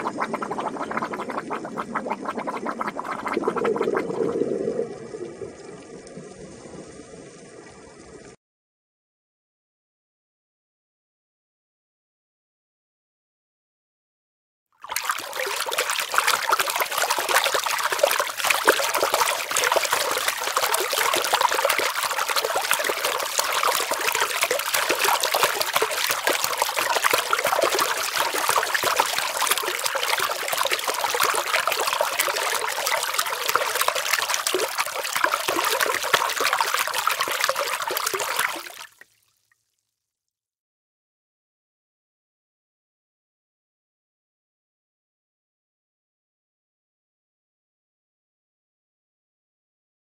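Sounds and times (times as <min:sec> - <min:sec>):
water trickling: 0:00.0 - 0:08.4, 0:14.8 - 0:39.9.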